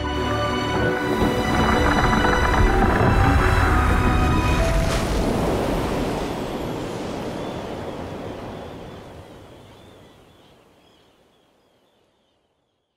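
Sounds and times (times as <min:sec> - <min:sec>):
ice collapsing into the sea: 0:01.1 - 0:06.5.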